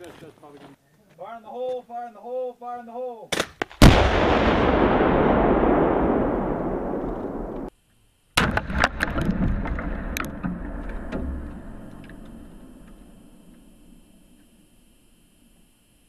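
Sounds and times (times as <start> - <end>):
explosion rumble: 3.8 - 7.7, 8.4 - 12.8
debris cracks landing: 8.4 - 12.4.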